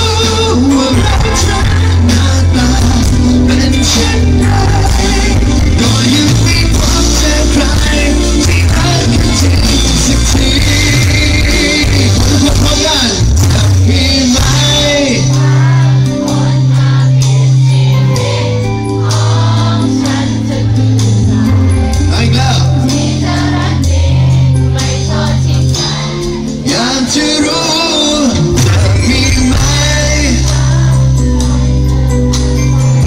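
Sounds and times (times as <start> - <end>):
man singing: 0.0 - 16.2, 21.7 - 23.2, 26.5 - 33.0
live pop-rock band playing: 0.0 - 33.0
sustained bass line: 0.0 - 33.0.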